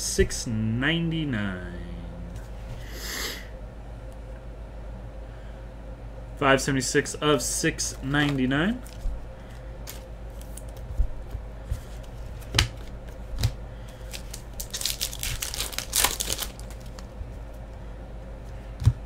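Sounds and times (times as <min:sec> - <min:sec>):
trading cards crinkling: 0:07.9 - 0:17.4.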